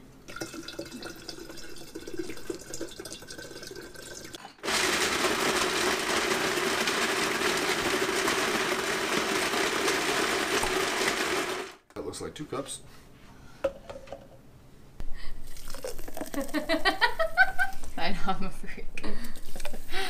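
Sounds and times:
liquid pouring into plastic jar: 0.3s - 10.9s, 15.4s - 16.8s
blender motor running: 4.6s - 11.8s.

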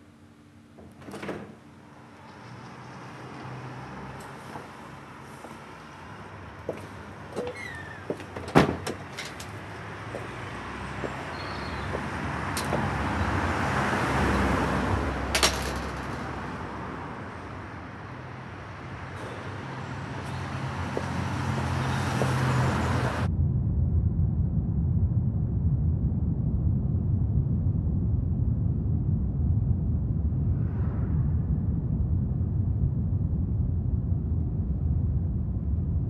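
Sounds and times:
moving vehicle rumble: 0.8s - 36.0s
cars passing: 1.8s - 23.3s
metal gate clicking and knocking: 7.4s - 9.6s, 15.3s - 16.5s.

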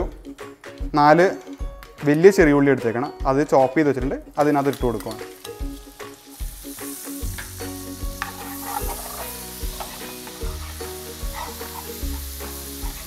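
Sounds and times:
shallots sizzling in frying pan: 4.3s - 13.0s.

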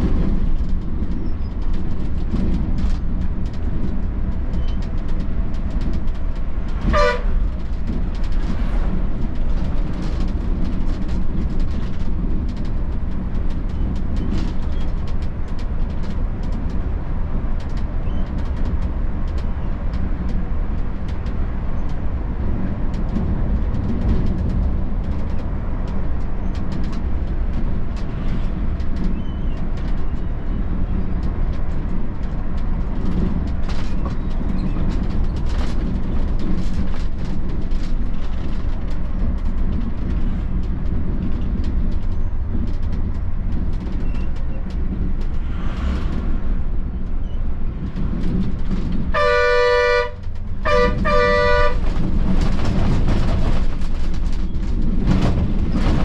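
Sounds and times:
bus engine and road rumble: 0.0s - 56.0s
vehicle horn honking: 6.9s - 7.4s, 49.2s - 51.8s.

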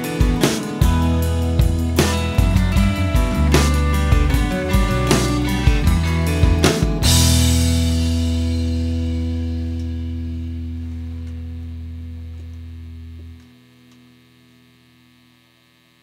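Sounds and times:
rock chord ringing out: 0.0s - 15.2s
deep humming bass note: 0.9s - 13.5s.

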